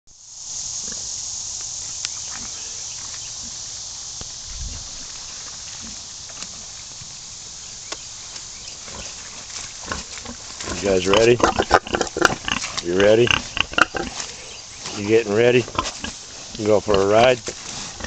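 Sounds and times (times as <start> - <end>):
insects droning: 0.1 - 18.0
footsteps on grass: 0.8 - 18.0
pigs grunting: 8.8 - 18.0.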